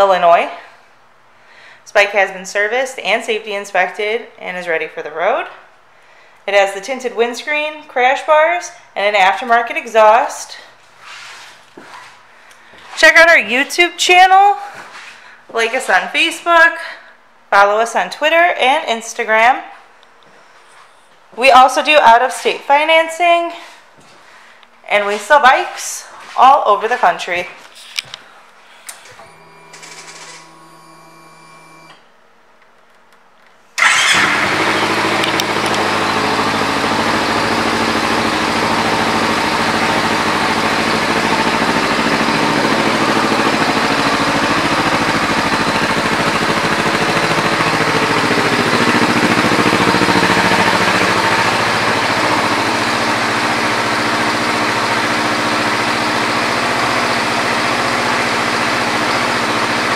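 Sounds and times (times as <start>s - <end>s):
motorcycle engine starting and idling: 29.0s - 32.0s, 33.8s - 59.9s.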